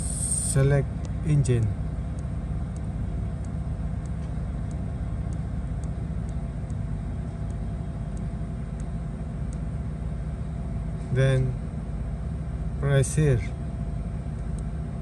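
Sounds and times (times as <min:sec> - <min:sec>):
machinery droning: 0:00.0 - 0:15.0
faint light ticks: 0:01.0 - 0:09.7, 0:14.4 - 0:14.7.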